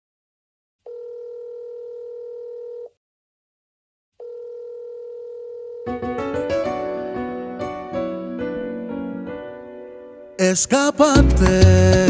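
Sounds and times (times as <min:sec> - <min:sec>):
telephone ringback tone: 0:00.9 - 0:03.0, 0:04.2 - 0:06.0.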